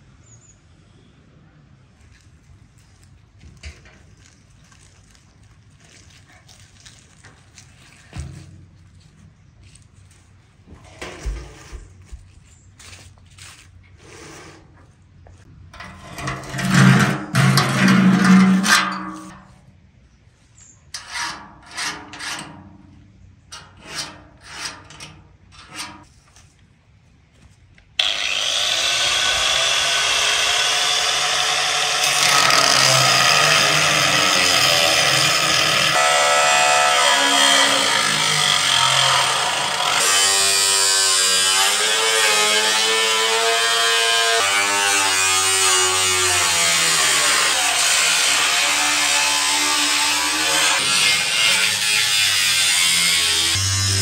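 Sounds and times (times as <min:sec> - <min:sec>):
small electric motor running: 0:52.3 - 0:54.0.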